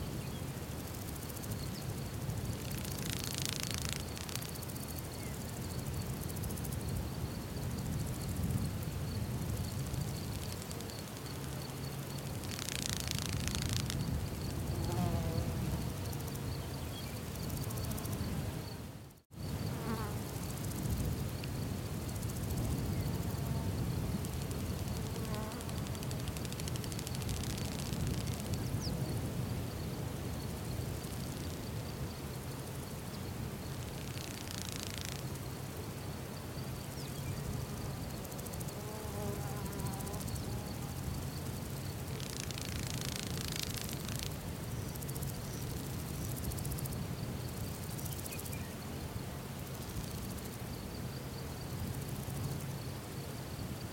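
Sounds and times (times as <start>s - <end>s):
flies buzzing: 1.2s - 6.4s, 9.7s - 20.7s, 23.1s - 28.7s, 33.8s - 35.6s, 37.4s - 45.4s
rapid high ticking: 2.6s - 4.8s, 10.2s - 14.1s, 42.1s - 44.4s
thin high buzz: 10.3s - 18.9s.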